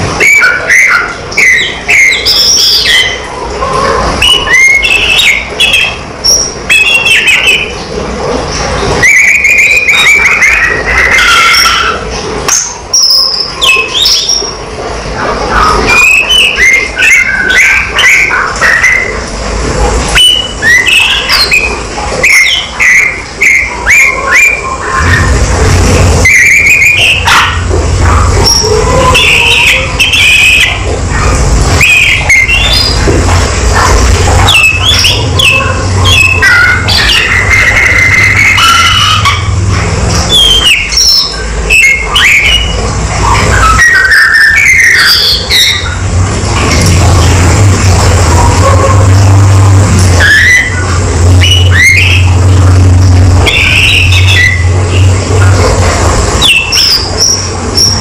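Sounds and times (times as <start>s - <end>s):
bird singing whistled phrases: 0.2s - 3.2s, 9.0s - 14.6s.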